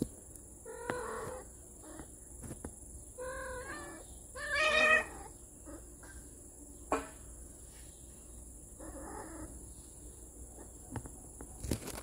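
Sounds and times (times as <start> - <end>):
cat meowing: 3.2 - 5.8.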